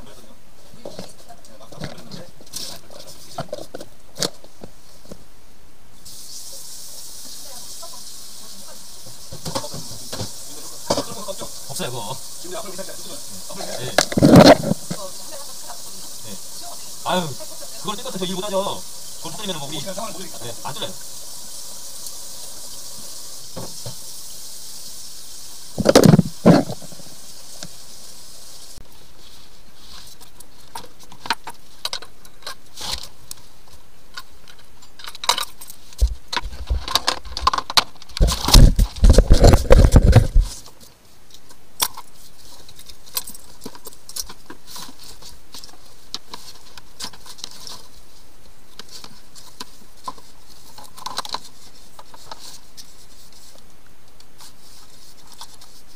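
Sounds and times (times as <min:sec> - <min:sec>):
plastic hoses clicking and scraping: 0:13.8 - 0:15.1, 0:29.8 - 0:55.9
knocking and rubbing: 0:14.0 - 0:15.0, 0:25.8 - 0:27.0.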